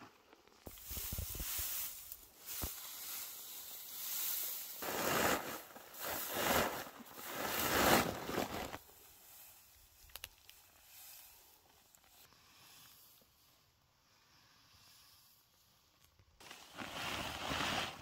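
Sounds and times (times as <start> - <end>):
dry hay rustling and crackling: 0.2 - 12.2.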